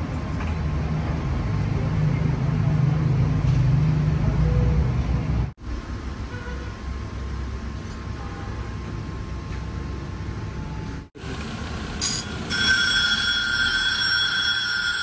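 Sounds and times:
grinding wheel spinning: 0:11.3 - 0:15.0
steel grinding whine: 0:12.0 - 0:15.0.

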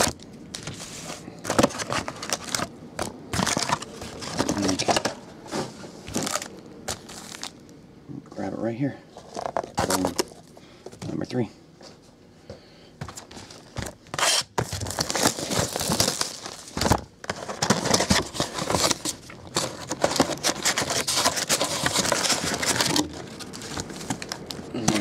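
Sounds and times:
foil packs crinkling: 0:00.0 - 0:05.2, 0:06.1 - 0:07.7, 0:09.2 - 0:10.6, 0:13.0 - 0:25.0
scraping against cardboard box: 0:13.0 - 0:25.0.

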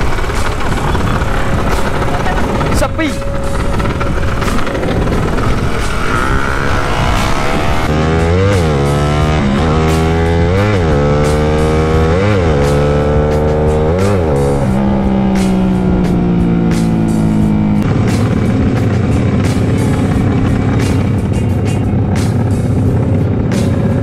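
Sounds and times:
wind on microphone: 0:00.0 - 0:08.3
motorcycle riding: 0:00.0 - 0:24.0
backing music with steady beat: 0:06.9 - 0:24.0.

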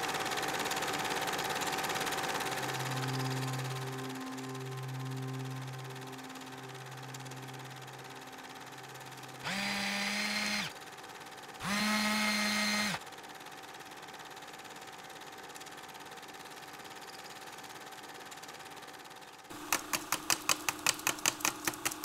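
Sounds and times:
small motor whirring: 0:00.0 - 0:18.6
low held note: 0:01.7 - 0:10.0.

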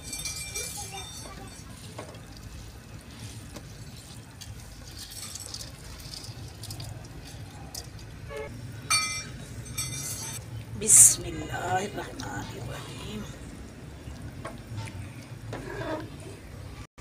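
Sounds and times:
metal clink: 0:00.0 - 0:01.6, 0:08.9 - 0:10.4
boiling water rushing: 0:00.0 - 0:16.8
rice grains pattering into water: 0:01.1 - 0:08.2.

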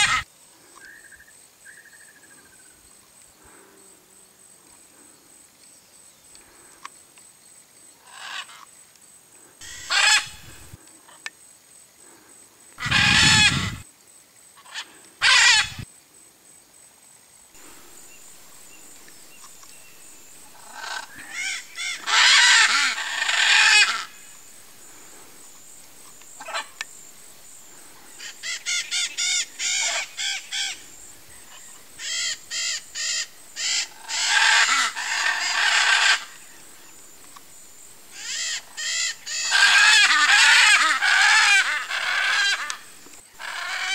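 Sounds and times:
macaw squawking: 0:00.0 - 0:00.2, 0:09.6 - 0:10.8, 0:12.8 - 0:13.8, 0:14.7 - 0:15.8, 0:17.6 - 0:25.4, 0:26.0 - 0:27.0, 0:27.6 - 0:36.5, 0:38.1 - 0:43.9.

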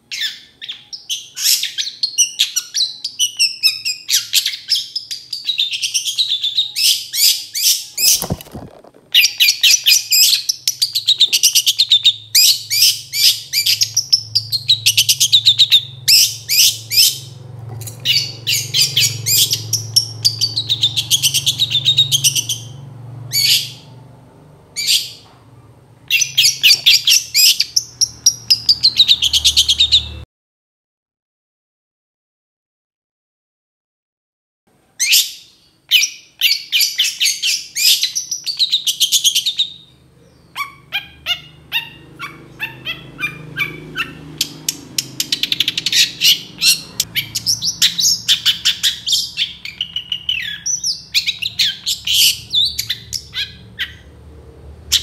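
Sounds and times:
bird chattering song: 0:00.1 - 0:17.4, 0:18.0 - 0:23.9, 0:26.1 - 0:30.2, 0:35.0 - 0:54.1.

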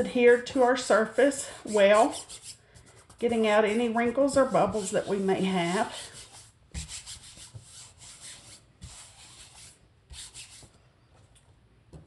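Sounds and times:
hands swishing over stencil: 0:04.2 - 0:10.7.

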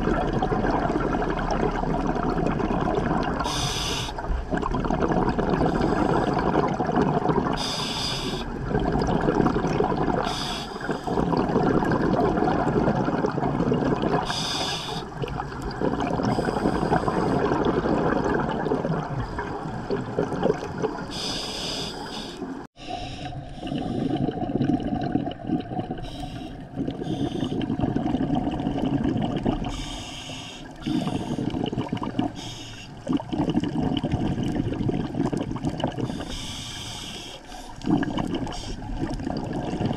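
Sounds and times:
exhaled bubbles gurgling: 0:00.0 - 0:39.9
scuba regulator inhale hiss: 0:03.4 - 0:04.2, 0:07.6 - 0:08.5, 0:10.2 - 0:11.2, 0:14.3 - 0:15.2, 0:21.1 - 0:24.2, 0:26.0 - 0:27.6, 0:29.7 - 0:31.6, 0:32.3 - 0:33.0, 0:36.0 - 0:37.8.

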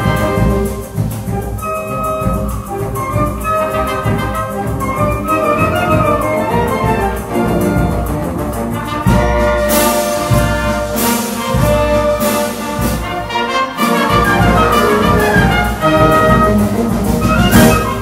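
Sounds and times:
loud accented percussion strikes: 0:00.0 - 0:18.0
wind band playing: 0:00.0 - 0:18.0.

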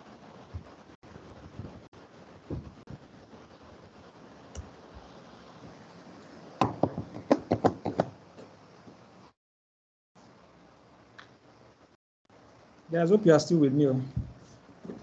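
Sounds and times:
laptop keyboard typing: 0:06.6 - 0:08.5.

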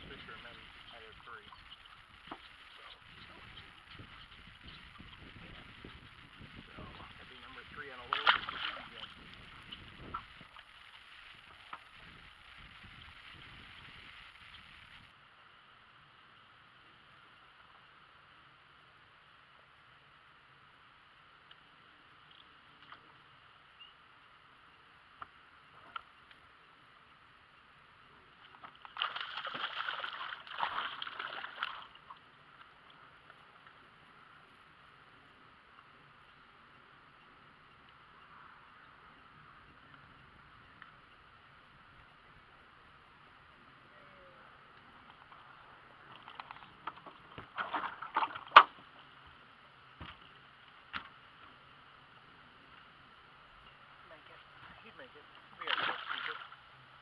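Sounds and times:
fish thrashing and splashing: 0:08.0 - 0:11.0, 0:28.5 - 0:32.1, 0:55.6 - 0:56.6.

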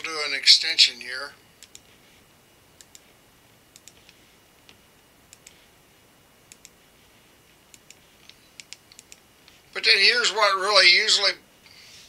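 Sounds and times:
computer mouse clicking: 0:01.6 - 0:01.9, 0:02.8 - 0:03.1, 0:03.7 - 0:05.7, 0:06.5 - 0:06.8, 0:07.5 - 0:09.6.

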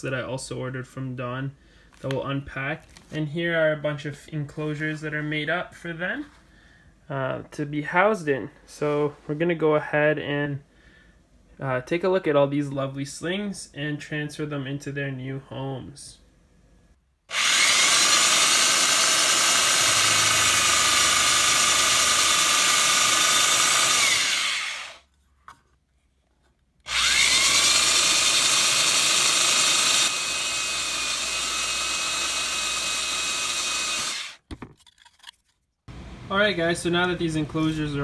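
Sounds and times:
drill press motor whine: 0:17.3 - 0:25.0, 0:26.9 - 0:34.4
drilling into plastic: 0:17.3 - 0:25.1, 0:26.9 - 0:34.5.

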